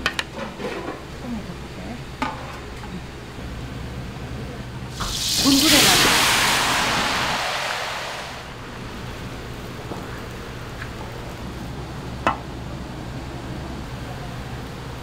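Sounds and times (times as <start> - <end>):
low kitchen hum: 0.0 - 15.0
greens sizzling in a wok: 4.9 - 12.3.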